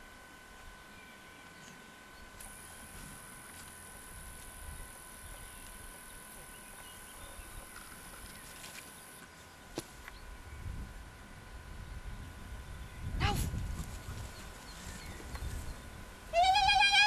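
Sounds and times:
faint steady tones: 0:00.0 - 0:17.0.

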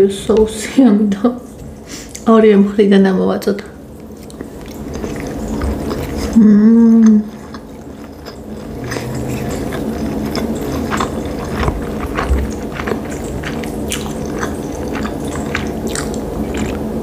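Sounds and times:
chewing with moist mouth sounds: 0:03.8 - 0:17.0.

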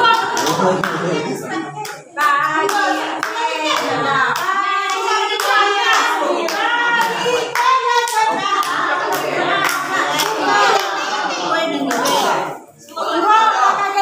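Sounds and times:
people clapping in time: 0:00.0 - 0:01.2, 0:01.8 - 0:11.1
group of people singing: 0:00.0 - 0:14.0.

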